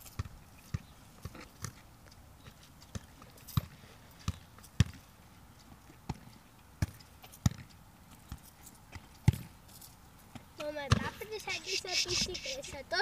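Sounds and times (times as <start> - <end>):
football being kicked: 9.2 - 9.5.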